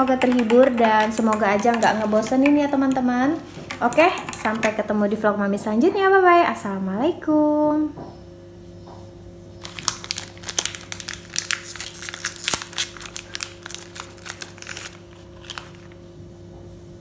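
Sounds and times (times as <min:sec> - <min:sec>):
plastic wrapper crinkling: 0:09.6 - 0:16.1.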